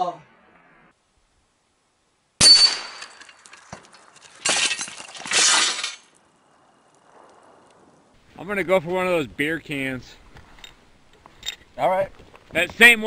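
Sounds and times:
crashing rattles: 0:02.4 - 0:06.2.

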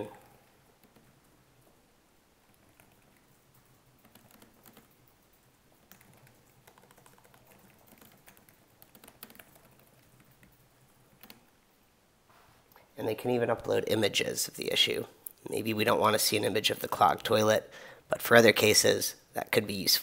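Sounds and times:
typing on a computer keyboard: 0:00.8 - 0:01.2, 0:02.5 - 0:11.5.

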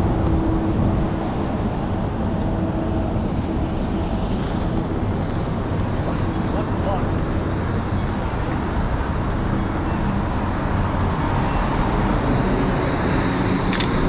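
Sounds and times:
city street traffic: 0:00.0 - 0:14.0
tyre hiss on wet road: 0:04.3 - 0:06.0.

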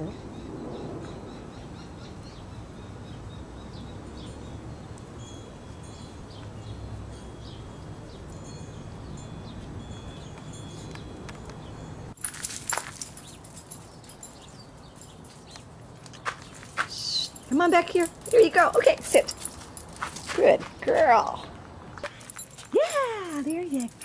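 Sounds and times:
thin high ringing tones: 0:04.1 - 0:15.5.

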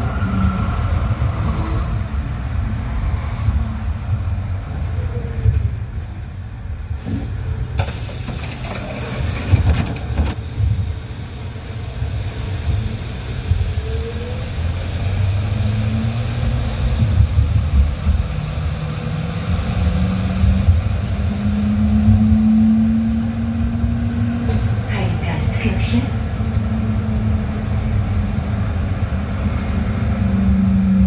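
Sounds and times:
tram rumbling: 0:00.0 - 0:31.0
loud hiss: 0:07.8 - 0:09.7.

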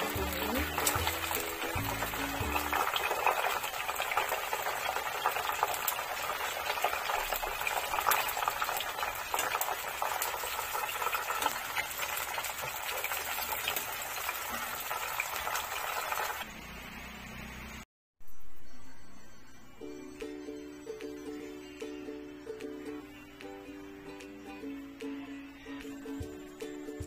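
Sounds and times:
chicken deep-frying in oil: 0:00.0 - 0:17.8.

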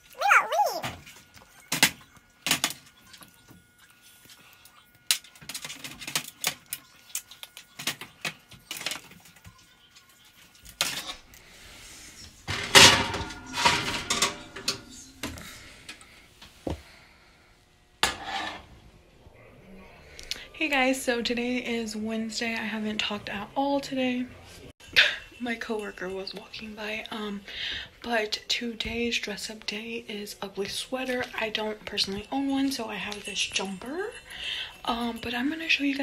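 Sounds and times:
baking sheet and utensils clattering: 0:12.2 - 0:15.8, 0:18.0 - 0:18.7.

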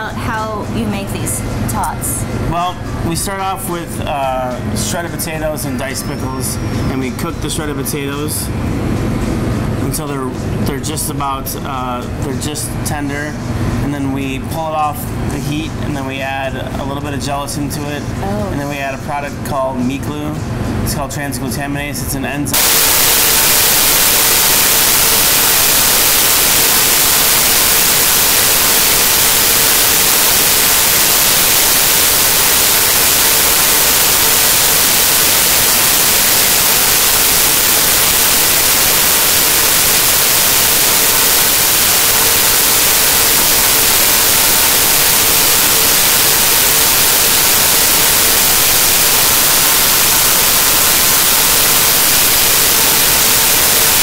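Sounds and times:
static hiss: 0:22.5 - 0:54.0.

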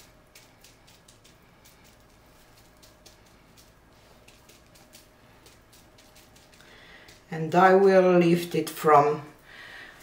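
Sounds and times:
bubble wrap crinkling: 0:00.0 - 0:07.3.

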